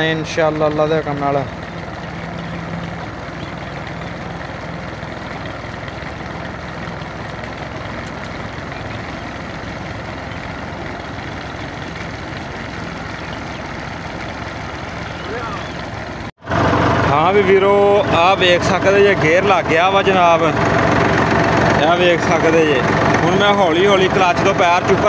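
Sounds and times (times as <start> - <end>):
tractor diesel engine idling: 0.0 - 25.0.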